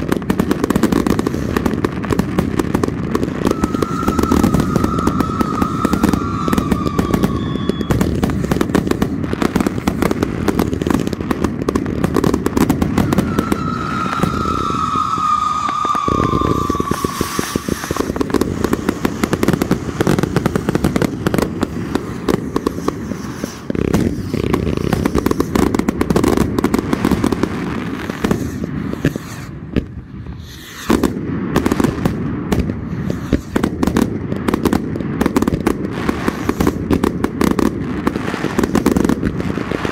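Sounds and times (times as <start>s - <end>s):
fireworks banging and crackling: 0.0s - 39.9s
firework whistles falling in pitch: 2.8s - 9.4s, 12.2s - 26.4s, 30.2s - 32.1s.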